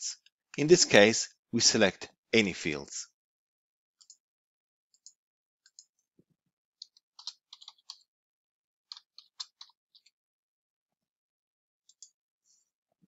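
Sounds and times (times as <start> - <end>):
computer mouse clicks: 4.0 - 4.2, 6.8 - 8.1
keyboard typing: 6.8 - 8.1, 8.9 - 10.1.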